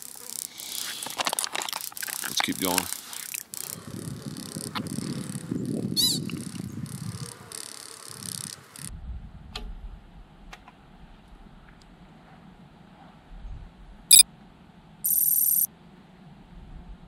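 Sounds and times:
wind rumble on microphone: 0:03.8 - 0:14.1, 0:16.4 - 0:17.0.

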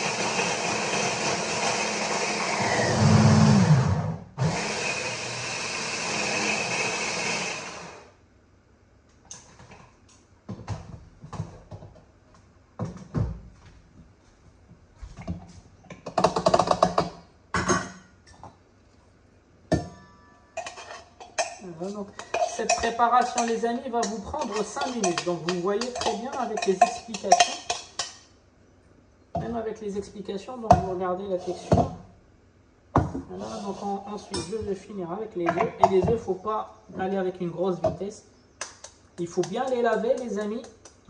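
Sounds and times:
electric blender motor: 0:00.0 - 0:08.1
utensils clattering: 0:20.5 - 0:21.6, 0:22.2 - 0:28.2
bowl and utensils clicking: 0:22.2 - 0:28.2.

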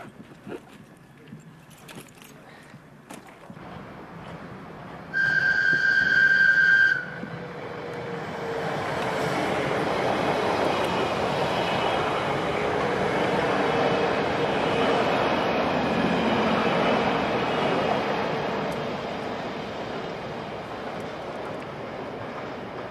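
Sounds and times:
train running noise: 0:03.6 - 0:22.9
train horn high note: 0:05.1 - 0:07.3.

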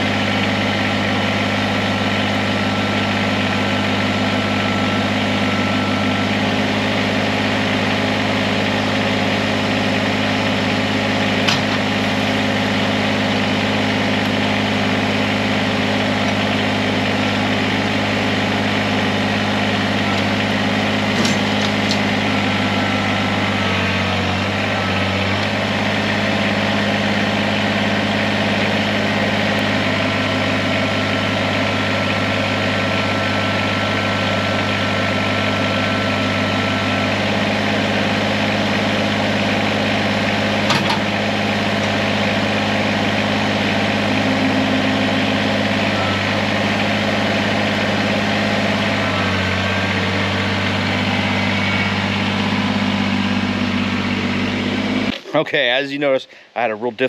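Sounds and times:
tractor diesel engine running: 0:00.0 - 0:57.0
thin hydraulic whine: 0:19.6 - 0:28.0.

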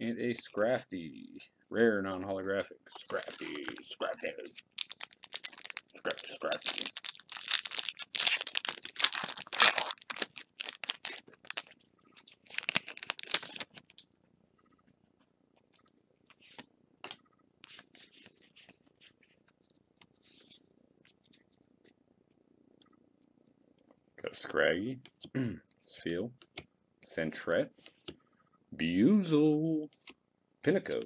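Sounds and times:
trading cards clicking and rustling: 0:03.0 - 0:14.0
foil wrapper tearing and crinkling: 0:04.6 - 0:11.8, 0:12.4 - 0:13.8.

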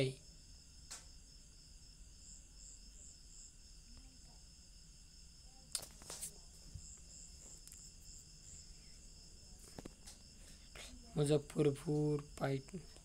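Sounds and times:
high-pitched insect chirping: 0:00.0 - 0:13.0.

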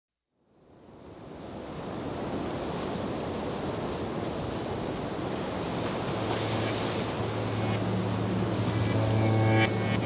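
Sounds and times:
wind: 0:00.3 - 0:10.0
ocean surf: 0:00.6 - 0:10.0
low steady hum: 0:06.2 - 0:10.0.

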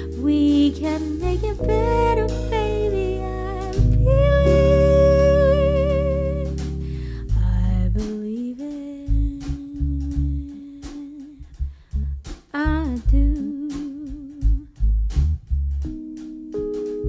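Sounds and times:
woman singing with vibrato: 0:00.0 - 0:11.4, 0:12.6 - 0:14.7
live jazz band: 0:00.0 - 0:12.0
deep bass notes: 0:00.0 - 0:17.0.

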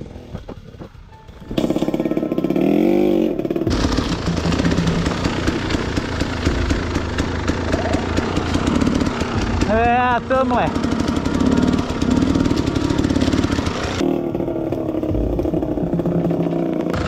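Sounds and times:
dirt bike engine revving: 0:01.5 - 0:17.0.

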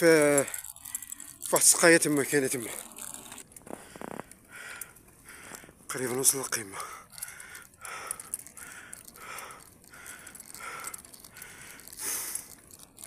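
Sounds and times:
person breathing hard: 0:03.7 - 0:05.9, 0:06.8 - 0:12.6.

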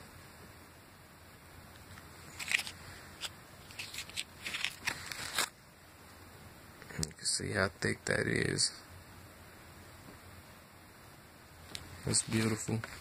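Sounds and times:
plastic sleeve crinkling: 0:02.2 - 0:05.6.

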